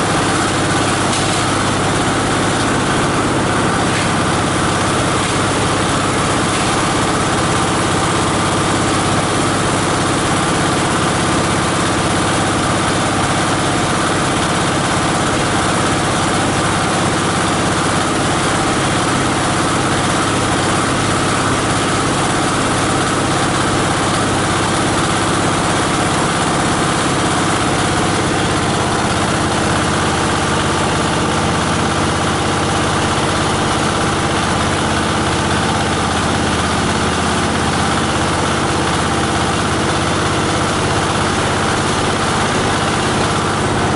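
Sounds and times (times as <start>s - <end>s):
diesel engine droning: 0.0s - 13.5s.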